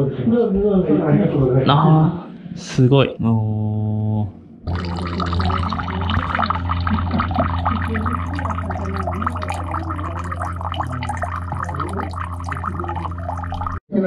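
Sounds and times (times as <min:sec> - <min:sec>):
steady low hum: 0:03.3 - 0:13.8
water trickling into stone basin: 0:04.7 - 0:13.8.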